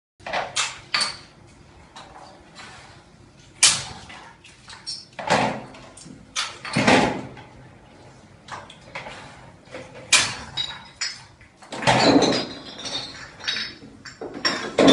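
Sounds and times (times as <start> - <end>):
glass bottles clinking in crates: 0.3 - 1.3, 4.7 - 5.7, 6.4 - 7.4, 9.8 - 14.9.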